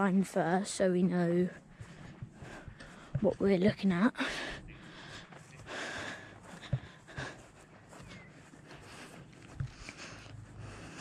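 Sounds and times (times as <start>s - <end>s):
footsteps on grass: 0.8s - 11.0s
breathing: 1.5s - 3.2s, 4.2s - 11.0s.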